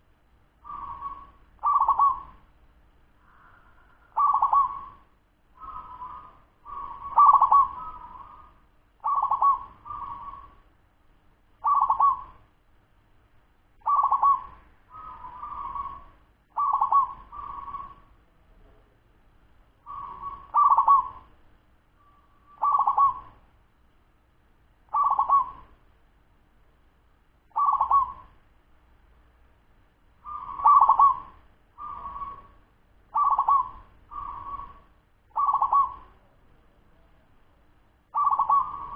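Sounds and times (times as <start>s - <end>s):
dove cooing: 0.6s - 2.5s, 3.2s - 10.6s, 11.6s - 12.5s, 13.8s - 18.2s, 19.8s - 21.4s, 22.3s - 23.4s, 24.9s - 25.8s, 27.5s - 28.4s, 30.2s - 36.4s, 38.1s - 38.9s.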